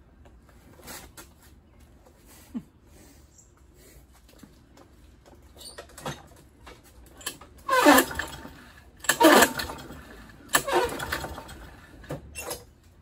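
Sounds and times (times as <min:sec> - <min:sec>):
mower recoil starter pulled: 0:07.1 - 0:12.6
engine cranking: 0:07.1 - 0:12.7.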